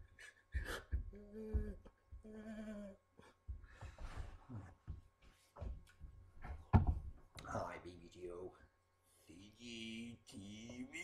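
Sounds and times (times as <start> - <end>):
man humming: 0.6 - 3.3.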